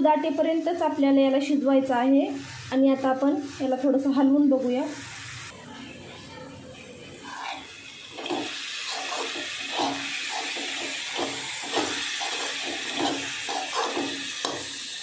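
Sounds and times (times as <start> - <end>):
hot pan hissing: 0.0 - 5.6, 7.0 - 15.0
spoon scraping metal pan: 7.2 - 14.8.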